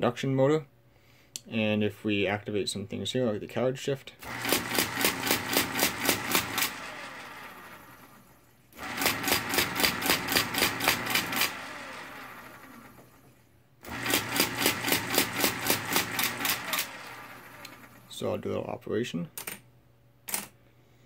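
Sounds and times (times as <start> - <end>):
rapid mechanical clicks: 4.2 - 8.0, 13.9 - 18.0
calculator motor humming: 4.2 - 18.2.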